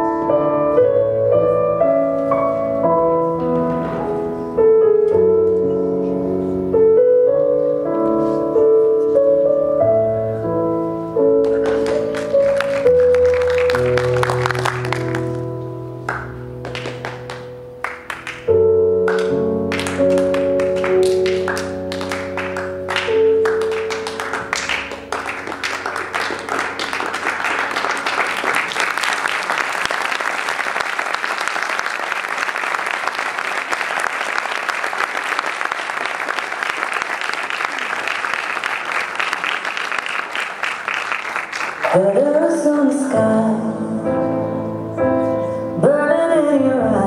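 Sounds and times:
music with held notes: 0.0s - 28.6s, 42.7s - 47.0s
audience applause: 11.4s - 15.5s, 16.1s - 18.4s, 19.1s - 42.0s
song with singer: 41.9s - 44.2s.

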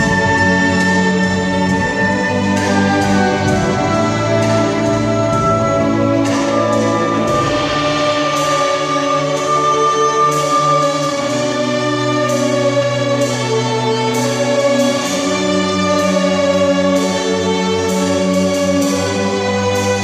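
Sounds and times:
string orchestra sustained chords: 0.0s - 20.0s.

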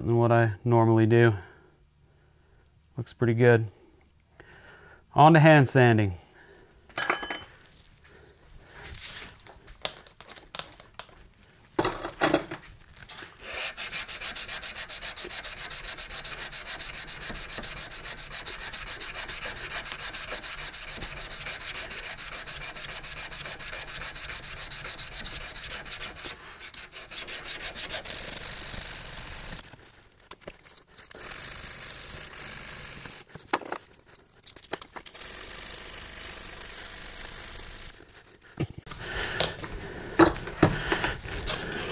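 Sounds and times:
sandpaper rubbing on steel blade: 13.1s - 29.8s, 41.2s - 41.9s.

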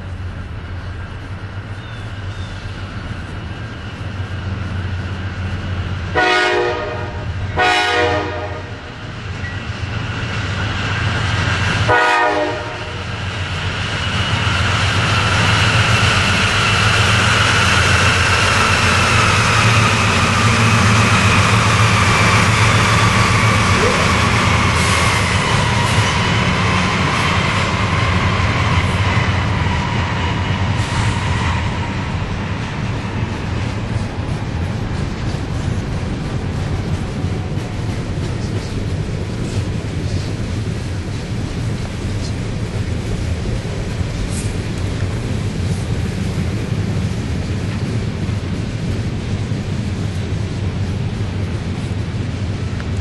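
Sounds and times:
locomotive engine running: 0.0s - 53.0s
locomotive horn blasts: 6.1s - 8.8s, 11.9s - 13.0s.

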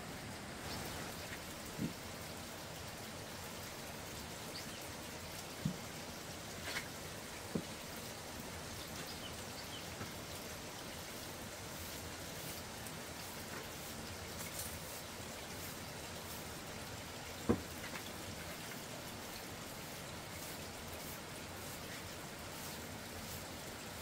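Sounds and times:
steady outdoor hiss: 0.0s - 24.0s.

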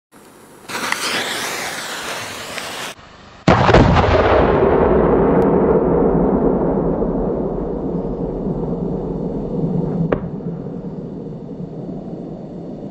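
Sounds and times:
firework fuse hissing: 0.2s - 3.5s
firework mortar boom: 0.7s - 12.2s.

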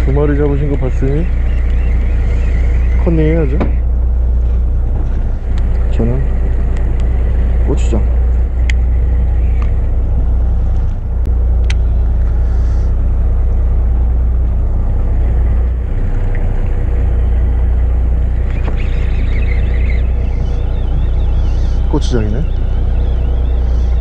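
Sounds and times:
boat engine running: 0.0s - 24.0s
light clicks: 11.6s - 12.4s.

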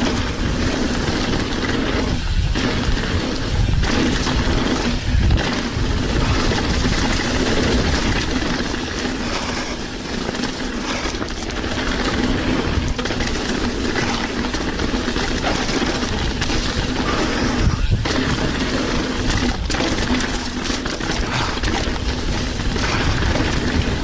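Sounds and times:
bike tyres and frame rattling: 0.0s - 24.0s
wind on microphone: 16.4s - 18.6s.

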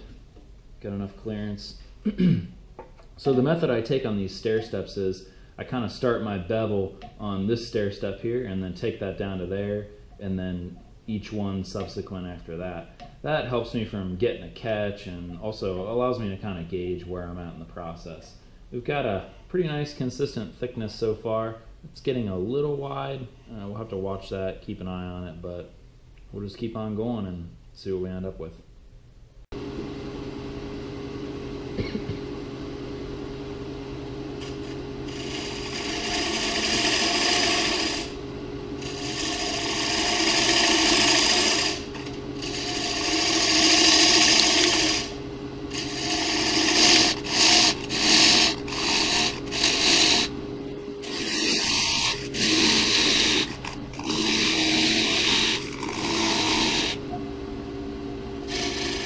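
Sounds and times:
wood lathe humming: 33.4s - 59.0s
gouge cutting wood: 34.4s - 38.1s, 38.8s - 50.3s, 51.0s - 57.0s, 58.5s - 59.0s.

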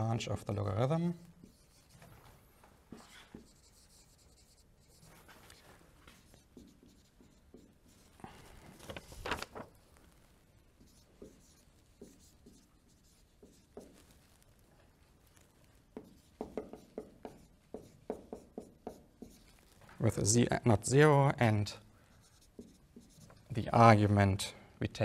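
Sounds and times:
marker writing on whiteboard: 1.4s - 8.4s, 10.7s - 14.3s, 15.8s - 19.8s, 22.1s - 23.6s.

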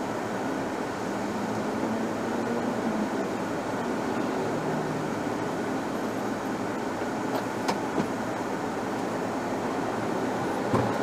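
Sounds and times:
city traffic rumble: 0.0s - 11.0s
vehicle idling: 0.0s - 11.0s.

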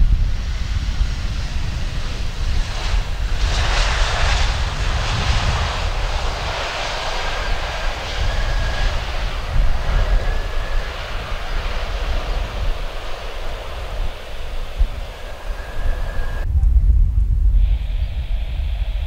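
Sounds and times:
jet engines reverse thrust roar: 0.0s - 16.6s, 17.2s - 19.0s.

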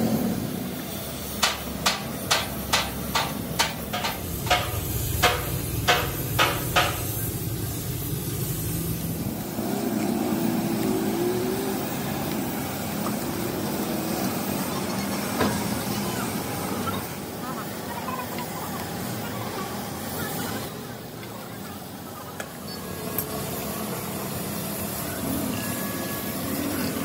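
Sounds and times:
traffic and street noise: 0.0s - 27.0s
sharp knocks: 1.4s - 7.1s.

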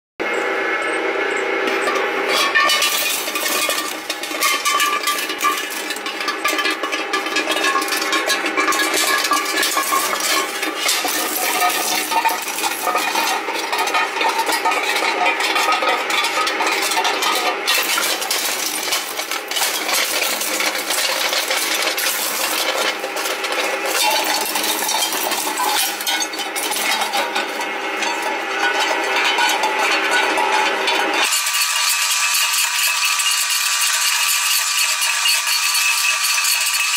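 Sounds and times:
ceramic clinking in shredder: 1.7s - 36.9s
ceramic breaking apart: 2.3s - 27.6s.

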